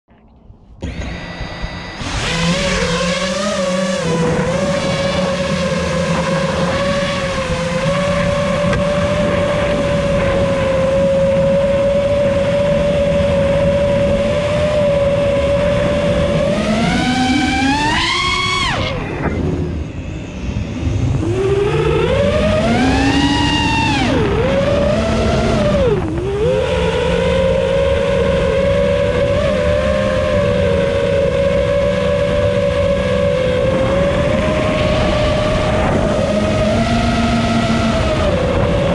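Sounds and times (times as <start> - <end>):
quadcopter motors whining: 0.6 - 38.9.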